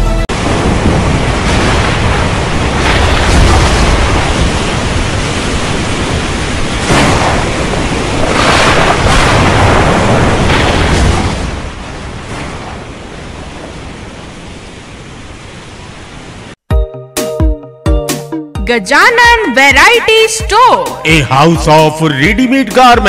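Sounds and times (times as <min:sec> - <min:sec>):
heavy rain: 0:00.3 - 0:16.6
wind: 0:00.3 - 0:16.6.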